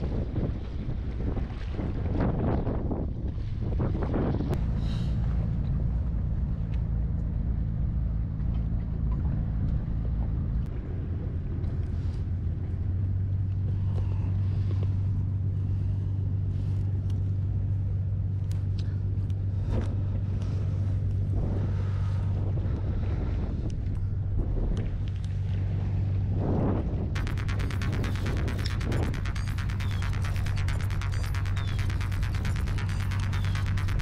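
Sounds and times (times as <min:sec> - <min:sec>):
wind buffeting microphone: 0:00.0 - 0:08.3, 0:19.0 - 0:34.0.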